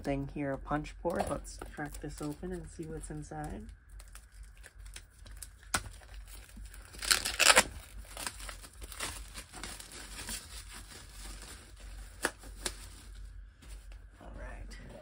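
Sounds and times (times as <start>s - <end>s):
plastic shrink wrap crinkling: 1.2s - 13.9s
plastic wrap ripping: 3.9s - 13.2s.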